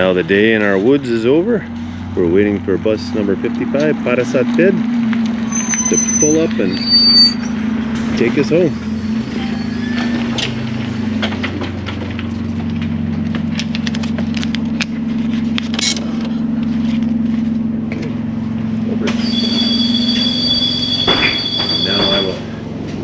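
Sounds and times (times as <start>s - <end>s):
bus engine humming: 0.0s - 23.0s
high two-note whine: 5.0s - 11.0s, 17.9s - 23.0s.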